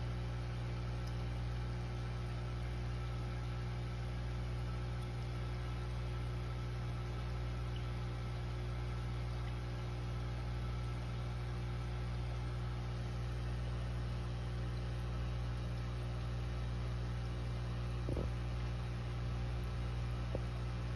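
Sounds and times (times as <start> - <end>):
aquarium equipment humming: 0.0 - 20.9.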